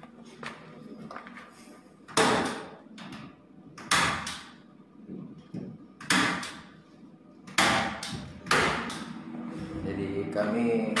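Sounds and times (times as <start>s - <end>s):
loud knocks echoing in concrete room: 2.1s - 4.6s, 5.5s - 6.8s, 7.4s - 9.2s.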